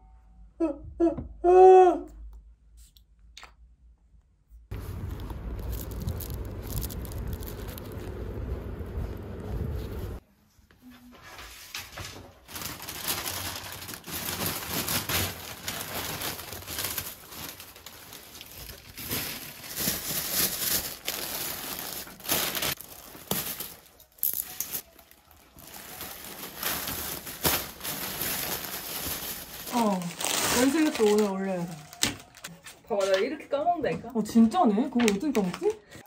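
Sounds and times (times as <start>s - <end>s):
low rumble: 4.7s - 10.2s
plastic bags crinkling: 4.7s - 10.2s, 12.4s - 32.6s.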